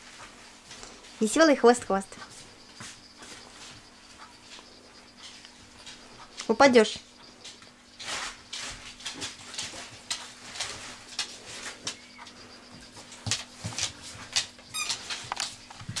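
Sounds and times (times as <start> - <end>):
puppy paws scrabbling on sheet: 8.0 - 12.0
puppy squeaking: 14.7 - 15.2.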